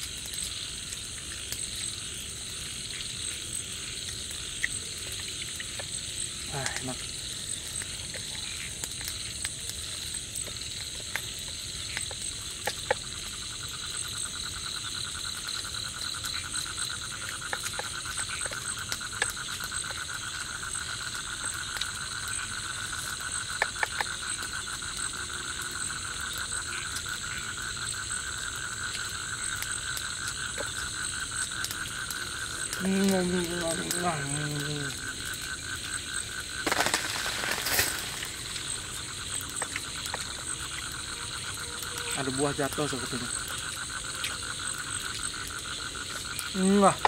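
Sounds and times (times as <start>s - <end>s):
insects droning: 0.0s - 47.0s.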